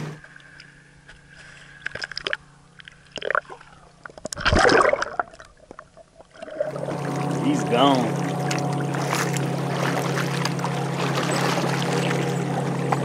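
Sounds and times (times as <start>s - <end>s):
water splashing and sloshing: 0.1s - 13.0s
muffled underwater gush: 4.4s - 13.0s.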